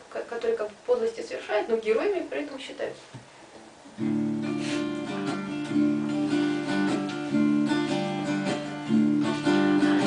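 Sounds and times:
acoustic guitar strumming chords: 3.9s - 10.0s.

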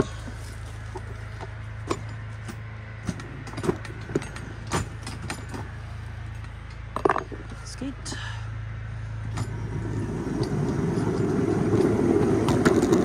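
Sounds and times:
train low hum: 0.0s - 13.0s
train cars clanking and rattling: 1.8s - 5.8s, 9.2s - 13.0s.

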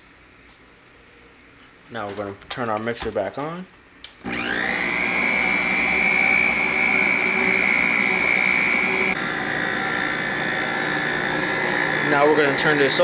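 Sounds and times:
stand mixer motor whine: 4.2s - 13.0s.

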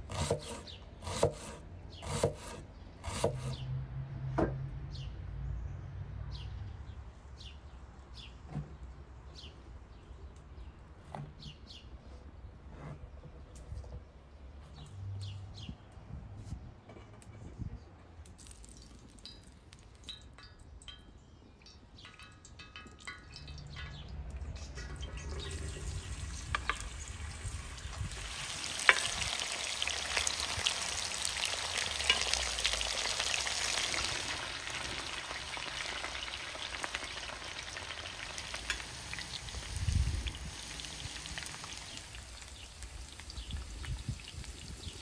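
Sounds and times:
loud oil crackle: 18.4s - 21.0s, 21.6s - 45.0s
potatoes sizzling in hot oil: 25.3s - 45.0s.

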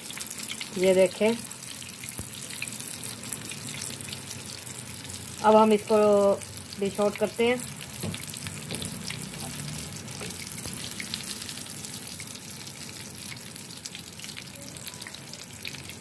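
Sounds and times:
oil sizzling in a pan: 0.0s - 16.0s.

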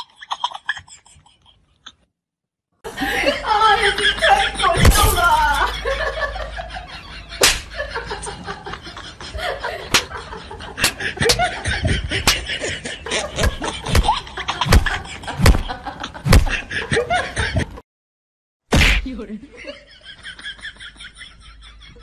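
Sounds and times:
sharp slapping smacks: 7.4s - 7.8s, 9.9s - 10.1s, 10.8s - 11.5s, 12.2s - 12.5s, 13.4s - 15.7s, 16.3s - 16.6s, 18.7s - 19.1s.

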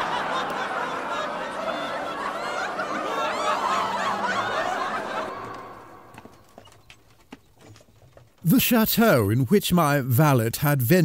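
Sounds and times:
crowd laughing: 0.0s - 6.7s.

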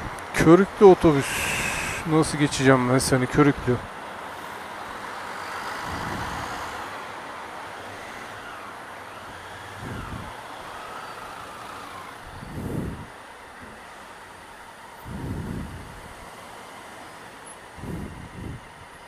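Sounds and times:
bus engine: 0.0s - 19.0s
motorcycle engine: 4.4s - 16.1s
wavering whine: 4.4s - 19.0s.

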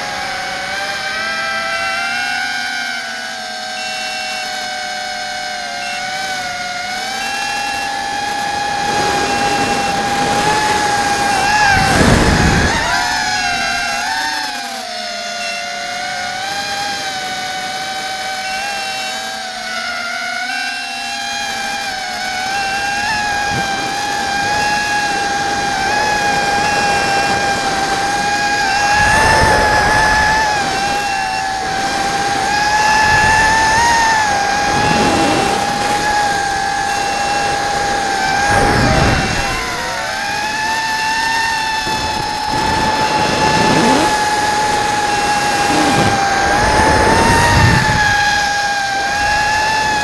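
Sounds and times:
quadcopter motors whining: 0.0s - 50.0s
rushes of air noise: 7.9s - 14.4s, 22.4s - 41.0s, 41.7s - 50.0s.

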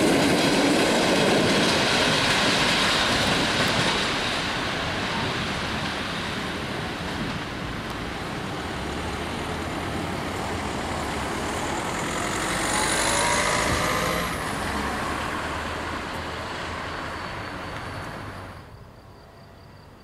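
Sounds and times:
car driving past: 8.7s - 18.6s.

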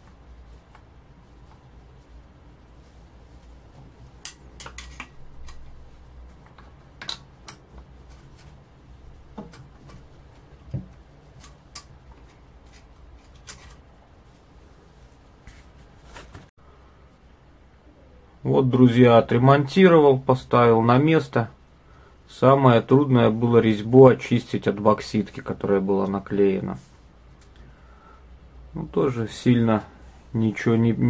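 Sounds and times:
faint low hum: 0.0s - 31.0s
clicks and taps of parts handled: 6.3s - 7.9s.

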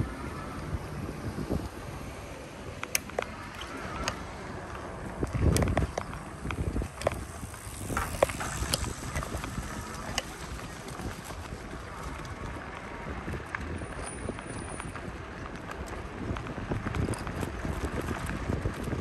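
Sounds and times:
bicycle clicks and rattles: 0.0s - 19.0s
wind rumbling on microphone: 0.0s - 19.0s.

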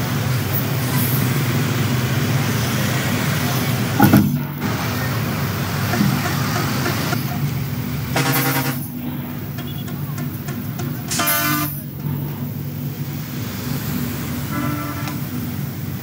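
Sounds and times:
road traffic passing: 0.0s - 16.0s
vehicle horn blasts: 8.1s - 12.3s, 14.5s - 15.4s.

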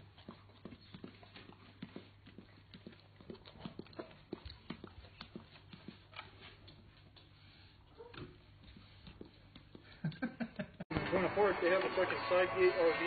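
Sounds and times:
dog licking and smacking lips: 0.0s - 7.7s.

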